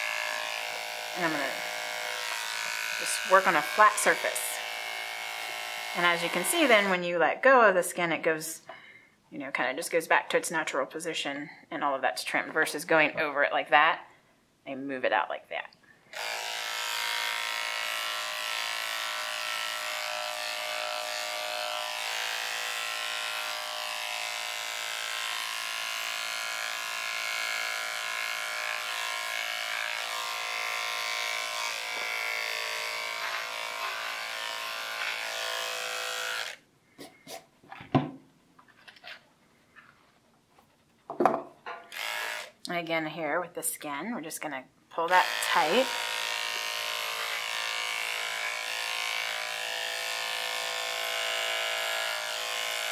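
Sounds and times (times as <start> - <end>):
electric pet clippers humming: 0.0 - 7.1, 16.1 - 36.6, 41.9 - 42.6, 45.0 - 52.9.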